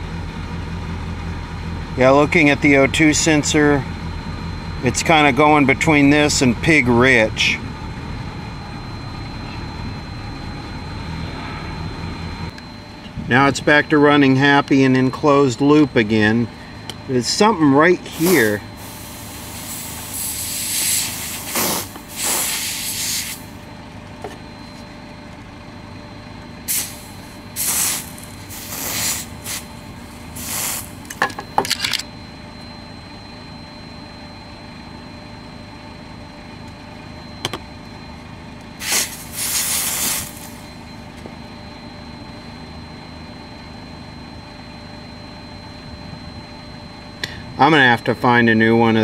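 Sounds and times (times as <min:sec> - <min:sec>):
aerosol spray hissing: 0:18.2 - 0:23.5, 0:27.6 - 0:29.7, 0:30.4 - 0:31.0, 0:38.8 - 0:40.6.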